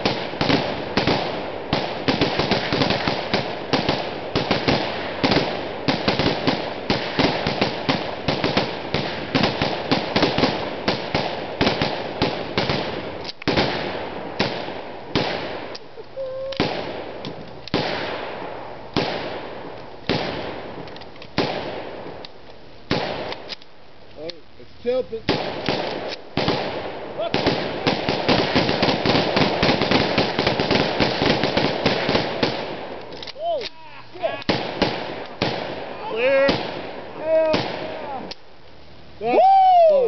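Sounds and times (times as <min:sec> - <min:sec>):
rifles firing rapidly: 0:00.0 - 0:15.7, 0:16.6 - 0:18.3, 0:19.0 - 0:20.8, 0:21.4 - 0:22.0, 0:22.9 - 0:23.5, 0:25.2 - 0:33.0, 0:34.3 - 0:38.3.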